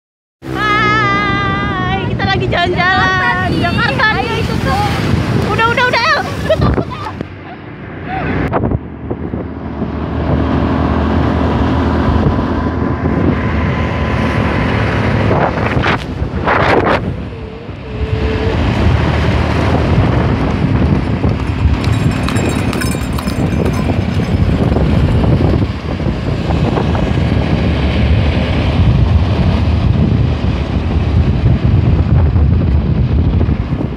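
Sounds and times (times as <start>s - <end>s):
road and traffic noise: 0.4s - 33.9s
wind buffeting microphone: 0.8s - 33.9s.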